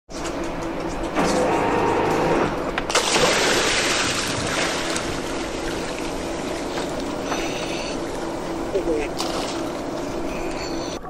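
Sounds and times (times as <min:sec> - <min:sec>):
boat engine humming: 0:00.1 - 0:11.0
frothing churning water: 0:01.1 - 0:11.0
diver splashing into water: 0:02.9 - 0:07.1.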